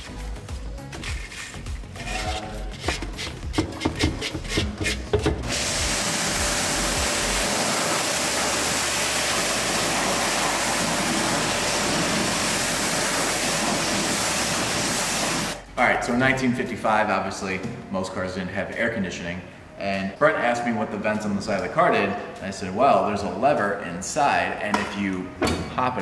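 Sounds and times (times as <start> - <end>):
pressure washer spray hissing: 5.4 - 15.6.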